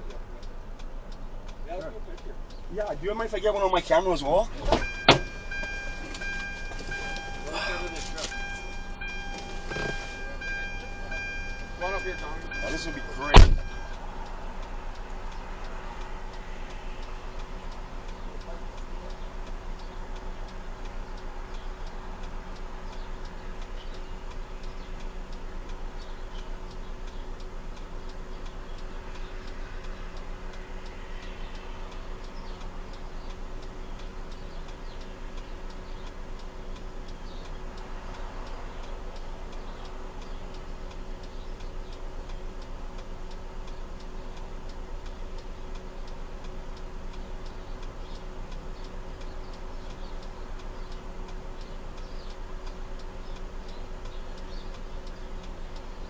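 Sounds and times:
car indicator clicking: 0.1s - 14.0s
low hum: 4.5s - 16.2s.

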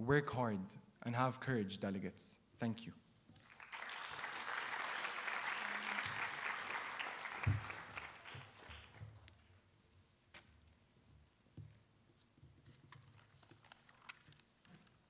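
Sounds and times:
audience applauding: 3.4s - 9.2s.

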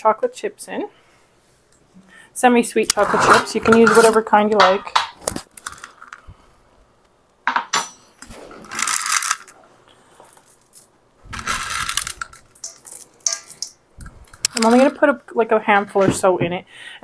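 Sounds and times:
chocolate chips rattling into bowl: 8.6s - 9.6s, 10.3s - 13.7s.

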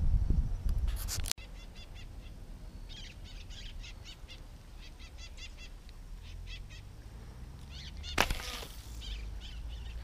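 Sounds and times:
wind rumble on microphone: 0.0s - 1.3s
bird chirping: 1.4s - 10.0s.

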